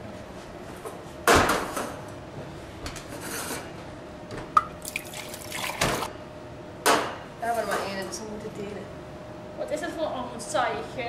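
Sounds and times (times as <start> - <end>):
liquid pouring into cup: 4.6 - 6.1.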